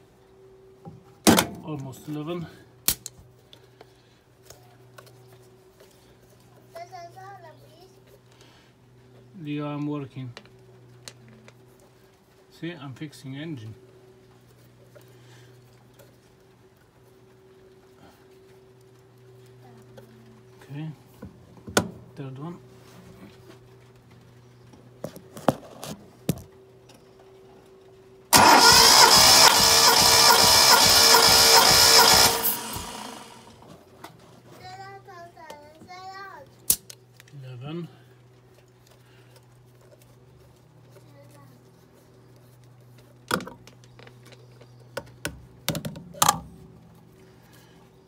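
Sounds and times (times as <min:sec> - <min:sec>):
starter motor cranking engine: 0:28.3 - 0:33.6.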